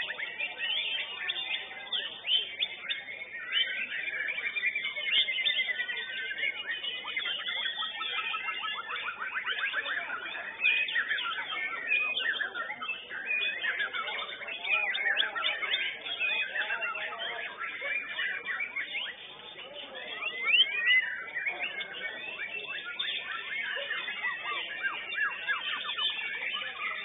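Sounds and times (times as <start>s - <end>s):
birds singing whistled phrases: 0.0s - 27.0s.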